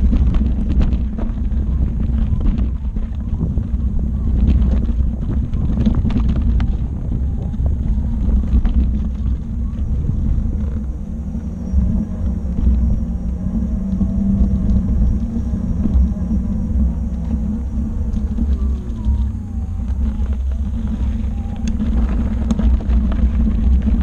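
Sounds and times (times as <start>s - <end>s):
loose gravel clicks: 0.0s - 24.0s
tyre rolling over dirt and pavement: 0.0s - 24.0s
wind buffeting microphone: 0.0s - 24.0s.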